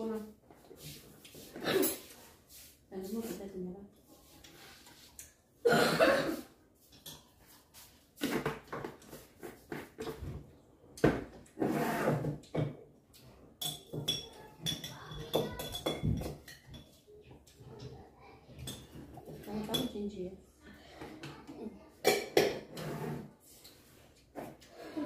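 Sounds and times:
spoons clinking on bowls and jars: 13.6s - 17.2s, 18.6s - 20.0s.

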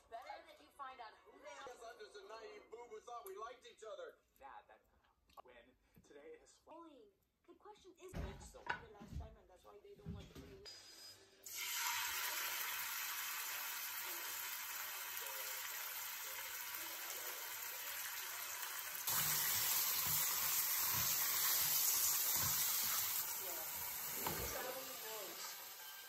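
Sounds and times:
meat sizzling in hot oil: 11.4s - 26.0s.

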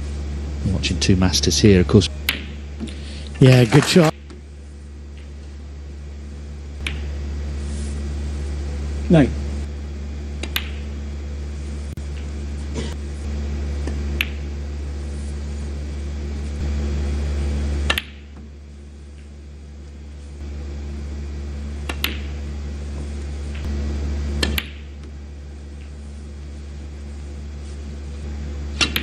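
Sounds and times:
low steady hum: 0.0s - 29.0s
snooker balls clicking: 6.8s - 7.2s, 10.4s - 10.9s, 13.8s - 14.5s, 17.8s - 18.4s, 21.8s - 22.4s, 24.4s - 25.2s.

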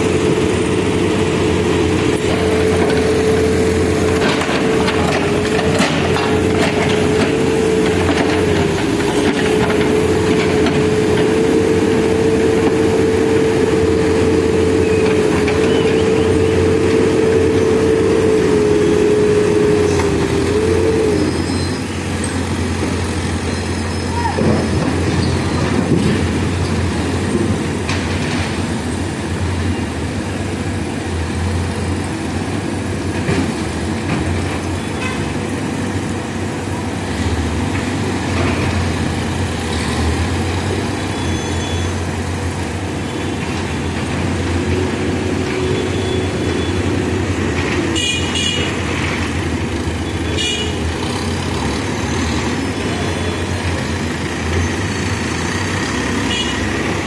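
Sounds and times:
diesel engine running: 0.0s - 57.0s
vehicle horns tooting: 47.9s - 48.8s, 50.2s - 50.9s, 56.2s - 57.0s.

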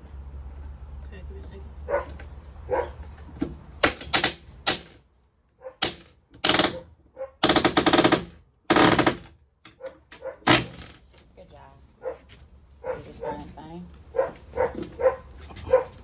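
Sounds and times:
nail gun firing: 3.8s - 5.0s, 5.8s - 6.8s, 7.4s - 9.3s, 10.4s - 11.0s.

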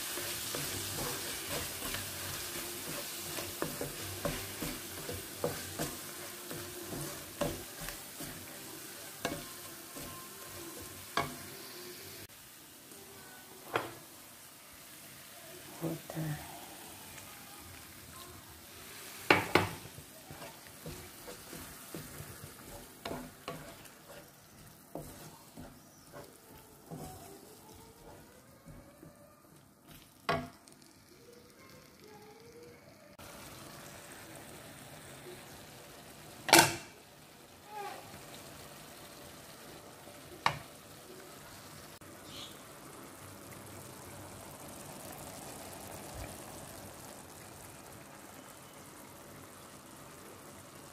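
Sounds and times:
sauce sizzling in a frying pan: 0.0s - 50.9s.

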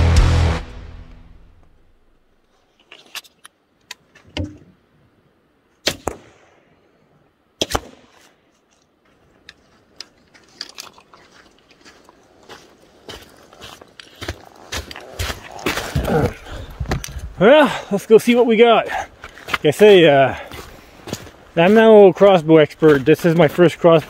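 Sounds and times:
crossbow shots: 5.8s - 6.6s, 7.6s - 8.3s.

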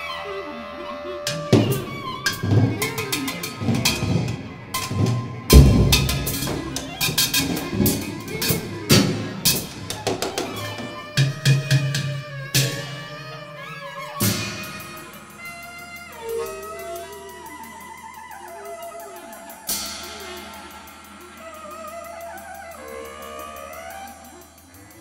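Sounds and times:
sharp hits: 5.4s - 8.2s.

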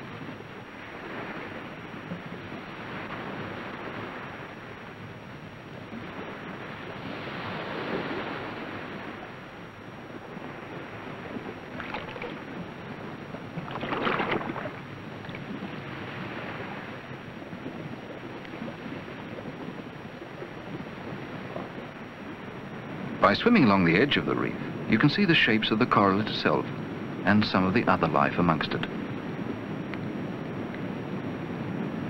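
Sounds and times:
sea water washing in swells: 0.0s - 32.0s
sharp water splashes: 11.7s - 12.6s, 13.6s - 15.6s.

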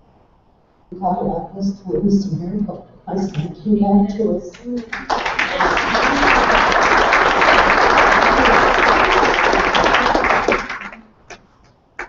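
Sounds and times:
audience applauding: 4.9s - 11.4s.

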